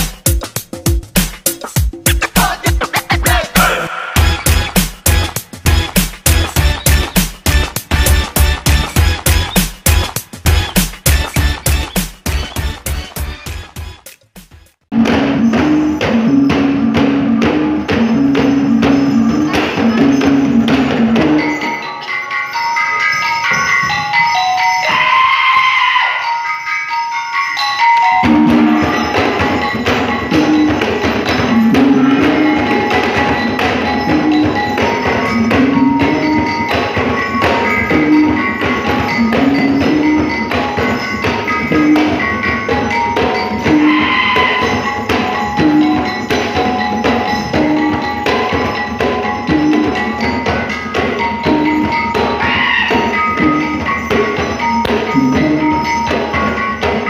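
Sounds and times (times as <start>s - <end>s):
drums and wood beat: 0.0s - 21.7s, 28.1s - 57.0s
tuned mallet percussion ringing: 15.0s - 57.0s.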